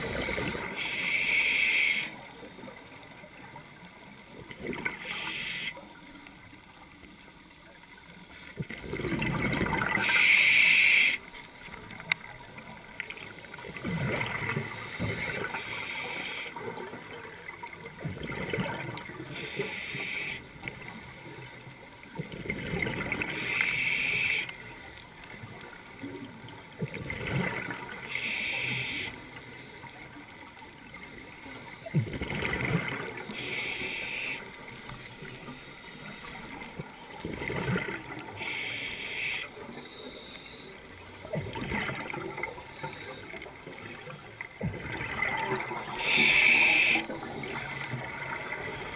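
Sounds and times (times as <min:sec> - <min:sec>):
regulator hissing inhalations: 0:19.4 - 0:20.4, 0:33.4 - 0:34.4, 0:38.4 - 0:39.5, 0:45.9 - 0:47.1.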